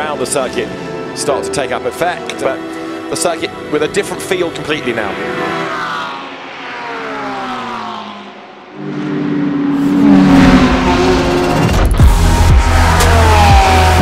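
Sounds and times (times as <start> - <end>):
race cars passing at speed: 0.0 - 14.0.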